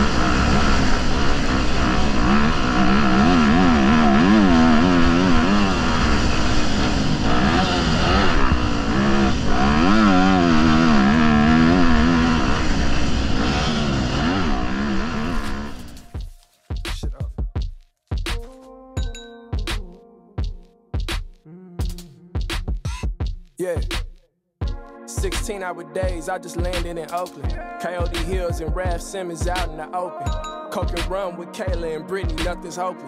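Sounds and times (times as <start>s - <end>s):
motocross bike engine revving: 0.0s - 16.0s.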